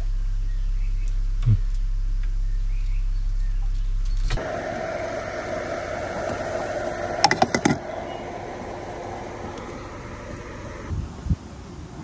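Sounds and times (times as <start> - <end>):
steady mechanical hum: 4.3 - 11.3.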